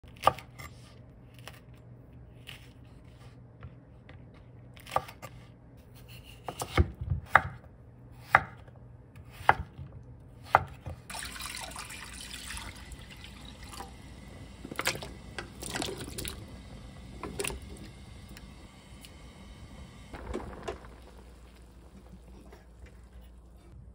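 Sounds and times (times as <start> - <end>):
knife chopping on wooden board: 6.2 - 11.0
running water: 11.1 - 18.4.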